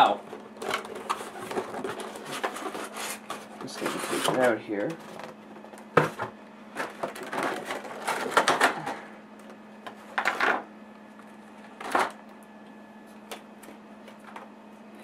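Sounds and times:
plastic packaging crinkling: 0.0s - 5.7s.

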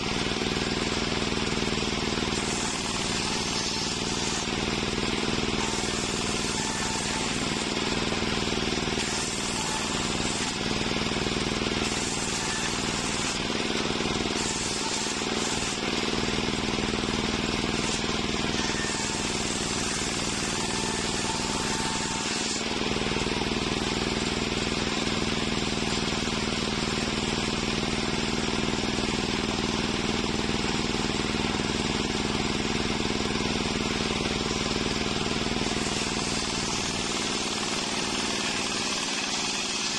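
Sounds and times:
table saw running: 0.0s - 39.9s
saw blade ripping through wood: 0.2s - 23.5s, 34.4s - 39.9s.

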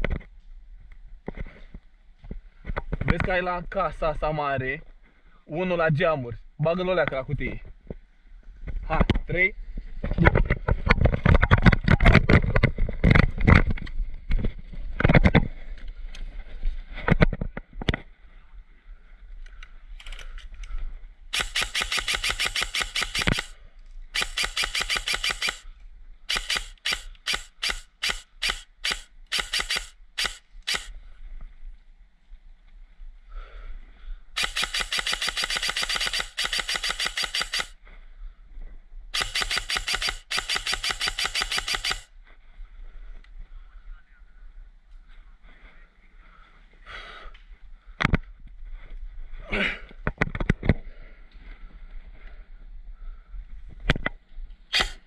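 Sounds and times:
airsoft rifle firing: 21.3s - 25.7s, 26.3s - 30.9s, 34.4s - 37.8s, 39.2s - 42.1s, 54.7s - 55.0s.

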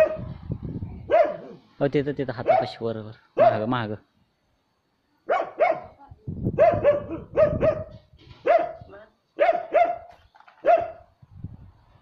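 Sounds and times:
dog barking: 0.0s - 0.3s, 1.1s - 1.6s, 2.4s - 2.8s, 3.4s - 3.7s, 5.3s - 6.0s, 6.6s - 8.8s, 9.4s - 11.0s.

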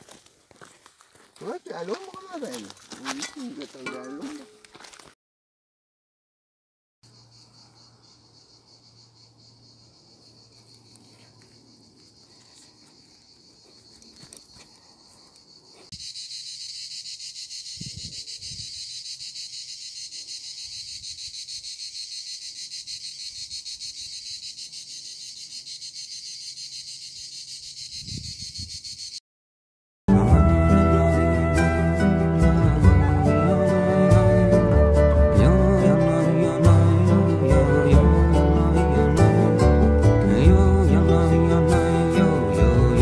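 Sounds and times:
cicadas buzzing: 7.0s - 29.2s.

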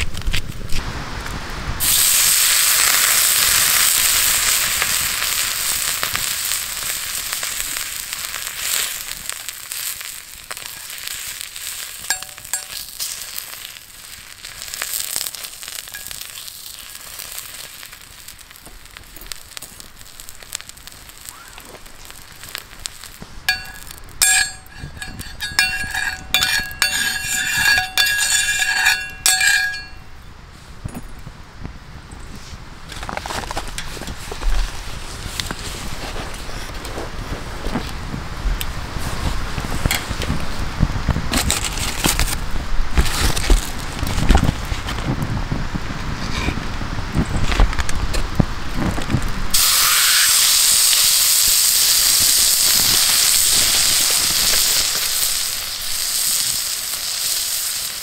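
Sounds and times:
steak sizzling on griddle: 1.8s - 30.0s, 47.1s - 58.0s
metallic clinks ringing: 12.1s - 12.8s, 23.5s - 30.1s.

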